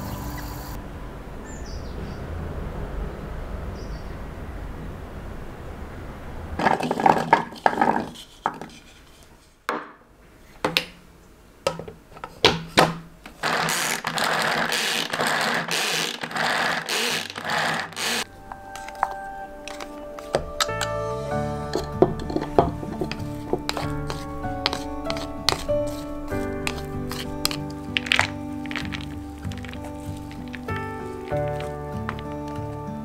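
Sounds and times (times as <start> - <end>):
container clicks and knocks: 6.6 - 8.2, 21.7 - 24.8, 26.7 - 32.6.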